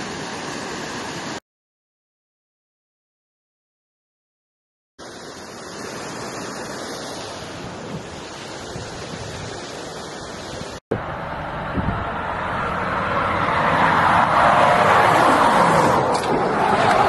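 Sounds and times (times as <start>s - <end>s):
wind buffeting microphone: 10.4s - 12.7s
heavy truck passing: 10.9s - 17.0s.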